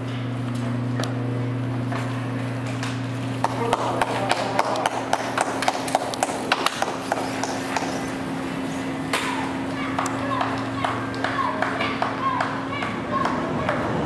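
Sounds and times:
steady low hum: 0.0s - 14.0s
spectators beating rhythm: 9.1s - 13.9s.

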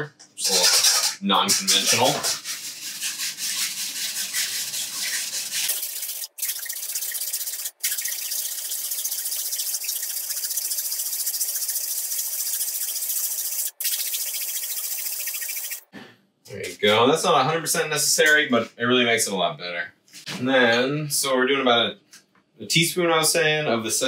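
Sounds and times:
wire whisk scraping metal strainer: 0.4s - 15.8s.

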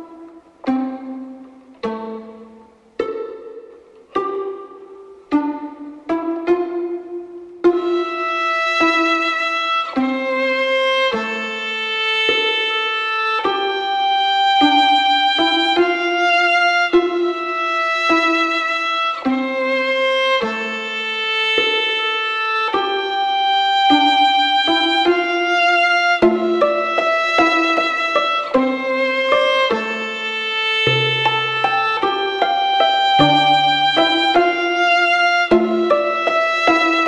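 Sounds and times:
slow instrumental melody: 25.5s - 37.0s.

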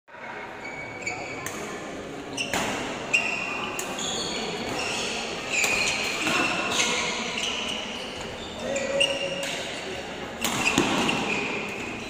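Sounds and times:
murmur of spectators: 0.1s - 12.0s
shoes squeaking on court: 0.6s - 1.6s, 2.3s - 12.0s
racquet hitting shuttlecock: 10.4s - 11.3s.

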